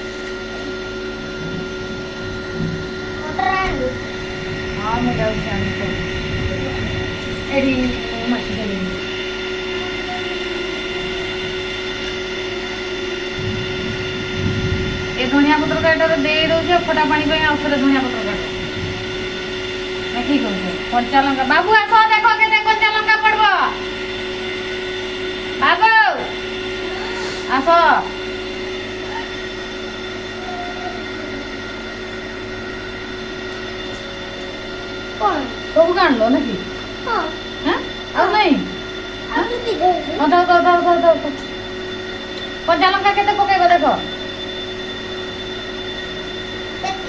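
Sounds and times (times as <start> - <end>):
steady mechanical hum: 0.0 - 47.0
hiss: 27.0 - 27.5.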